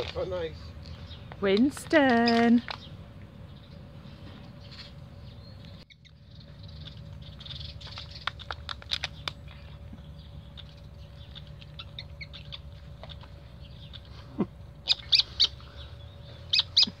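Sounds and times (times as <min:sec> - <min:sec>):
monkey eating clicks and smacks: 0:05.9 - 0:14.2
monkey high squeaks: 0:16.5 - 0:17.0.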